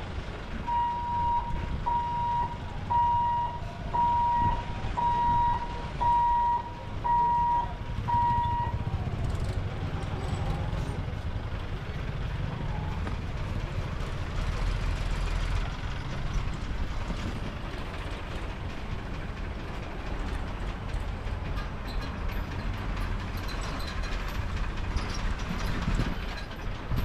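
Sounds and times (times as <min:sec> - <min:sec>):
vehicles driving over crossing: 0:00.0 - 0:27.0
level crossing warning beeps: 0:00.7 - 0:08.9.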